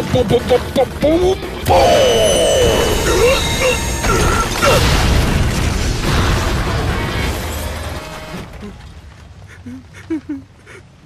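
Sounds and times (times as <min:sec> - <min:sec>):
heavy crash of rubble: 0:03.8 - 0:09.4.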